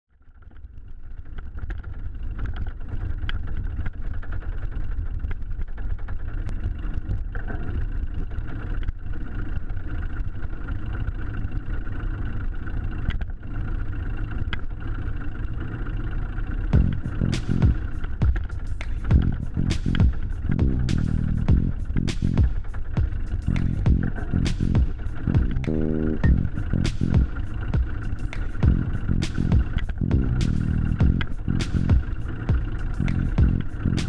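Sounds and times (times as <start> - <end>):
wind and road noise: 0.5 - 34.0.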